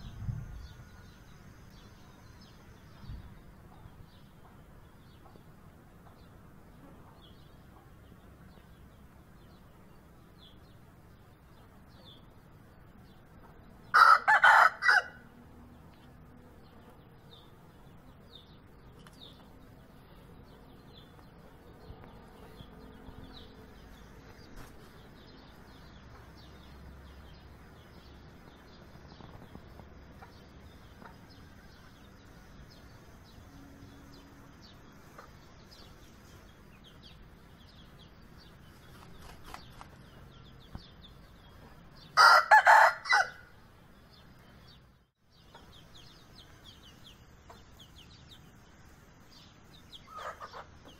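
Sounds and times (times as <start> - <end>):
small birds chirping: 0.0 - 50.9
rooster crowing: 13.9 - 15.3, 42.2 - 43.5.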